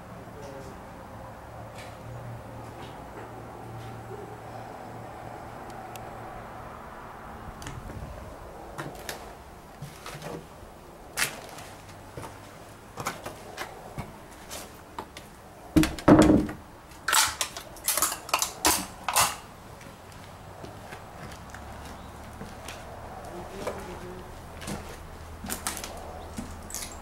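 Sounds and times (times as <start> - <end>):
footsteps on debris-strewn stairs: 9.8 - 17.7, 18.8 - 27.0.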